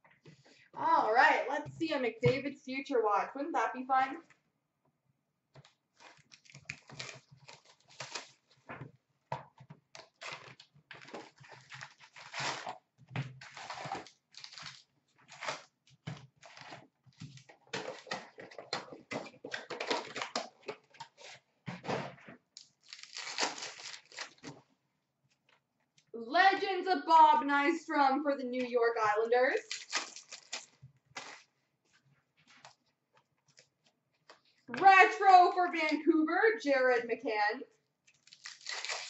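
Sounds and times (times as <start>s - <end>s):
wrappers tearing and crinkling: 6.0s - 8.7s, 10.0s - 21.4s, 22.6s - 24.6s, 29.6s - 31.5s, 38.1s - 39.0s
cards rustling: 29.6s - 31.5s.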